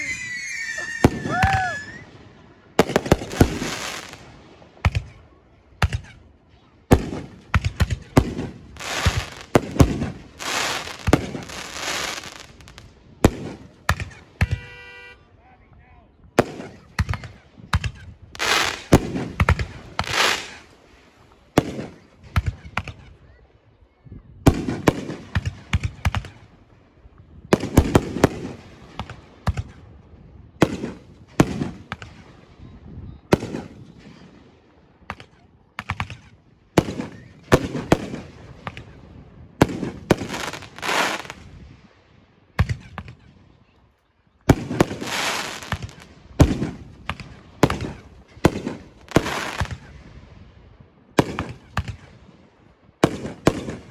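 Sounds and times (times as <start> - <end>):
fireworks bangs with echo: 2.7 - 5.2, 6.9 - 15.2, 16.3 - 20.7, 21.5 - 23.1, 35.0 - 41.7, 44.5 - 50.0, 51.2 - 52.2, 53.0 - 53.9
rapid firework pops: 44.5 - 50.0, 51.2 - 52.1.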